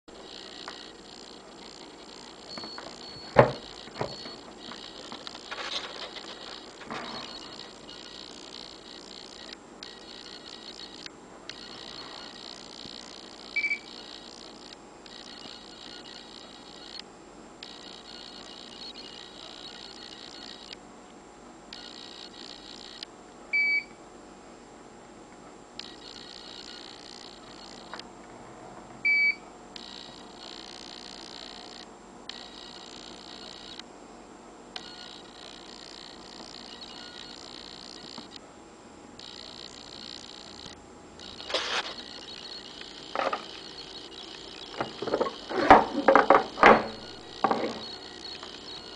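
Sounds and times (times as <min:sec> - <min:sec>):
double electronic beep: 0:13.5 - 0:14.4, 0:36.7 - 0:38.2, 0:41.2 - 0:45.5, 0:46.9 - 0:48.9.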